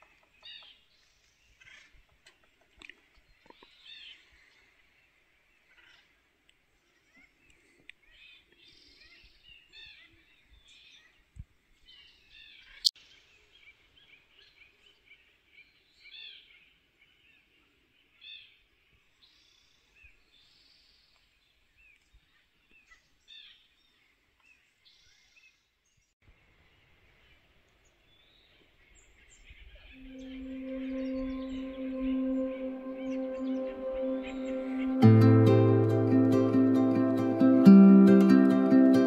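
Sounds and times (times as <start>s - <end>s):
birds chirping: 28.1s - 39.0s.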